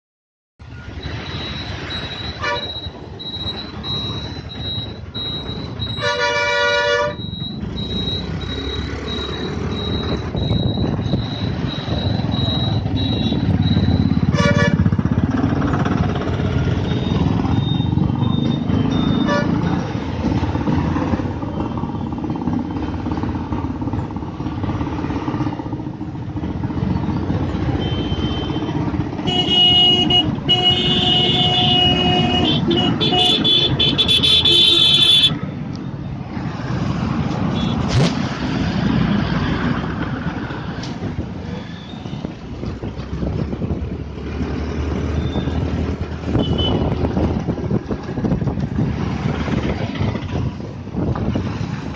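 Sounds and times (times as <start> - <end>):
motorcycle engine and road rumble: 0.6 - 51.9
nearby vehicles running: 0.6 - 51.9
vehicle horns honking: 2.3 - 2.8, 5.9 - 7.3, 12.9 - 15.0, 18.7 - 19.8, 27.7 - 35.4, 37.5 - 38.0, 46.3 - 47.1.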